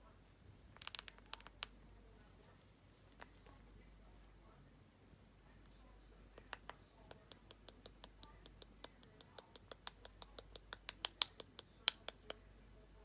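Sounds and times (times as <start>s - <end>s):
parrot clicking beak and tongue: 6.4s - 12.4s.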